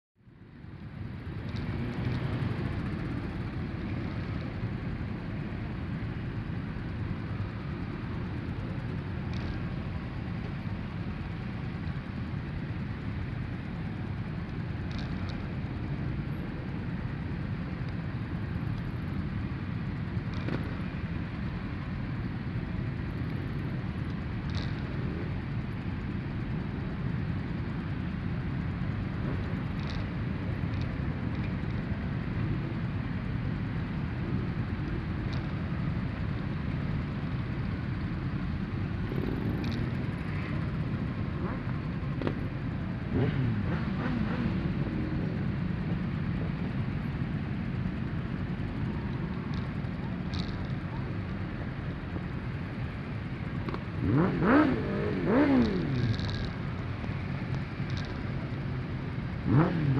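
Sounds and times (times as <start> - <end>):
motorcycle engines idling: 0.2 - 59.9.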